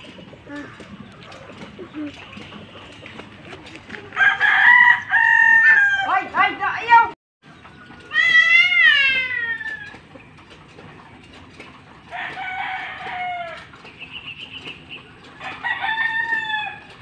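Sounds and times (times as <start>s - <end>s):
rooster crowing: 4.1s - 6.2s, 12.1s - 13.7s, 15.4s - 17.0s.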